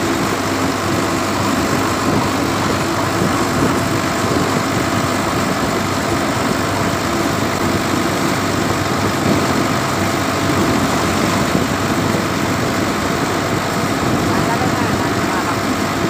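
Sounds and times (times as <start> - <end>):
tractor engine running: 0.0 - 16.0.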